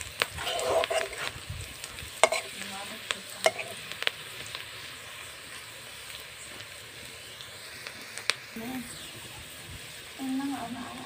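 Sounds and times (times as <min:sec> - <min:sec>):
onions sizzling in oil: 0:00.0 - 0:11.0
spatula clacking against wok: 0:02.2 - 0:02.6, 0:03.4 - 0:03.7.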